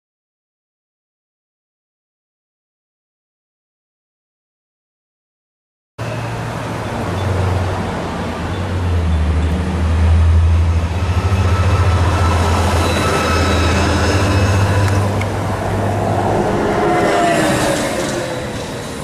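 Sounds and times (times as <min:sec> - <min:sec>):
trolleybus passing: 0:06.0 - 0:19.0.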